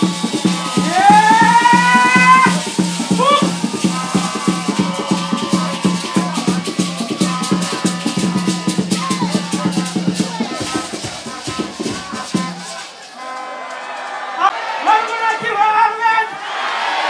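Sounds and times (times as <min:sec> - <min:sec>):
fast drum beat: 0:00.0 - 0:13.0
shaker: 0:00.0 - 0:14.4.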